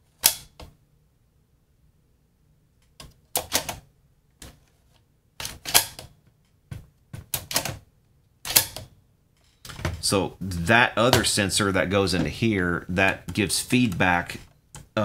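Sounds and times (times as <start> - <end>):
metallic clicks of cd changer: 8.5 - 8.9.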